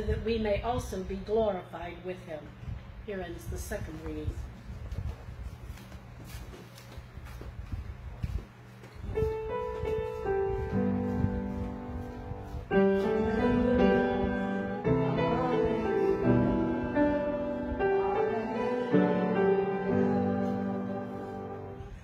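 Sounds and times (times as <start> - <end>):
piano playing slow chords: 9.2 - 22.0.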